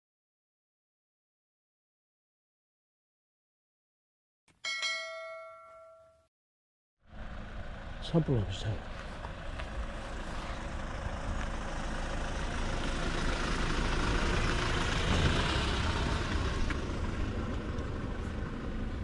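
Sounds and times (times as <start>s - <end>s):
vehicle passing: 7.0s - 19.0s.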